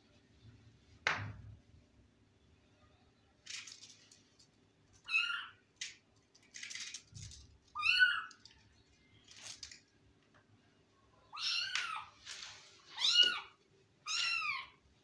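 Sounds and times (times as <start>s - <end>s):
rustling: 3.4s - 5.0s, 6.2s - 10.0s, 12.1s - 13.5s
kitten meowing: 13.0s - 14.8s.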